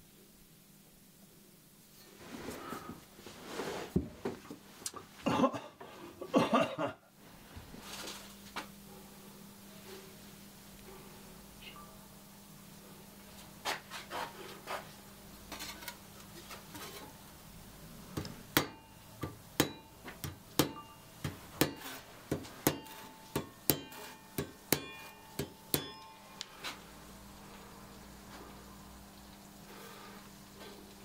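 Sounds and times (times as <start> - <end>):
hammer tapping saw blade: 18.6 - 26.8.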